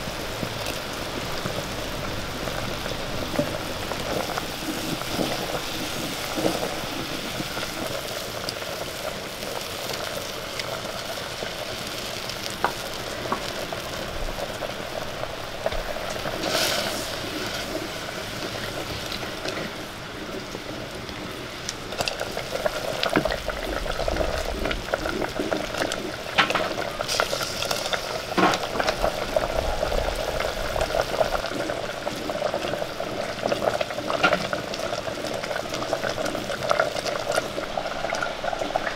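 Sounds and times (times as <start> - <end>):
shallots sizzling in a pot: 0.0 - 38.9
wooden spoon scraping a pot: 16.4 - 19.8.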